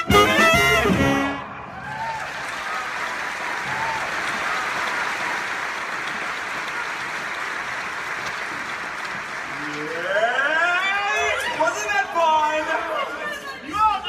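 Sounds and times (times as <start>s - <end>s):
audience applauding: 0.7s - 11.6s
audience cheers: 1.3s - 5.7s.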